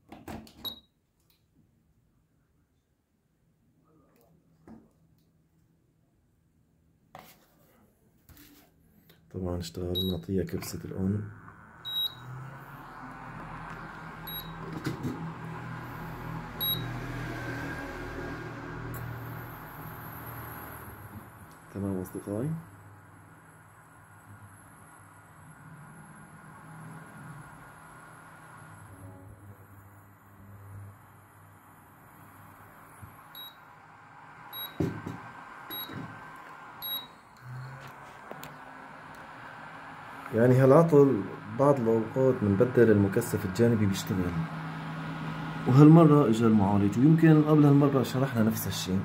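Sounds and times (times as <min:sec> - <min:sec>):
short high beeps: 0:11.8 - 0:12.3, 0:14.3 - 0:14.6, 0:34.5 - 0:34.8, 0:35.7 - 0:36.0, 0:36.8 - 0:37.7.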